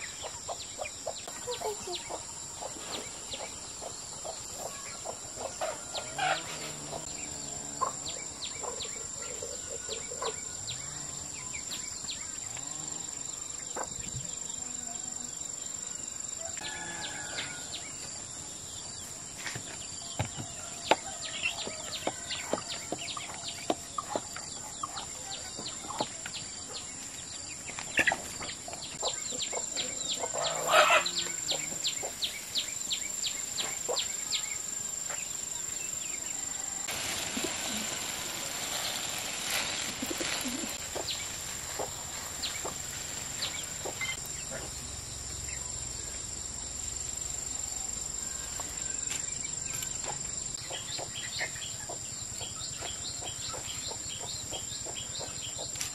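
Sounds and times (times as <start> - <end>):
chicks peeping: 0.0 - 7.1, 20.8 - 26.8, 27.6 - 32.7, 33.3 - 34.4, 37.1 - 44.7, 50.1 - 55.8
chickens clucking: 0.0 - 10.5, 21.5 - 26.9, 27.6 - 32.3, 36.9 - 44.8, 50.0 - 55.9
insects droning: 0.0 - 55.9.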